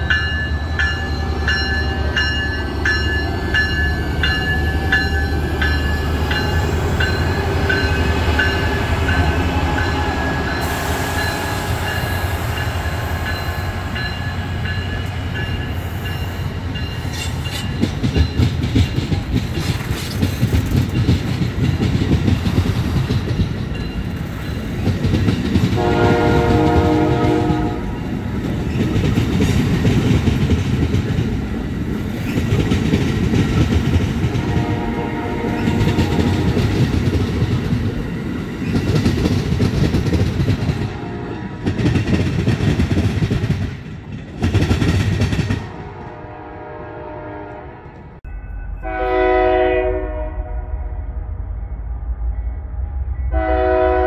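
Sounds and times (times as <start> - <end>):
train wheels rumbling and clicking: 0.0 - 46.1
train horn: 7.2 - 14.7, 25.7 - 28.1, 34.3 - 36.8, 40.8 - 41.7, 45.6 - 48.1, 48.8 - 51.2, 53.3 - 54.0.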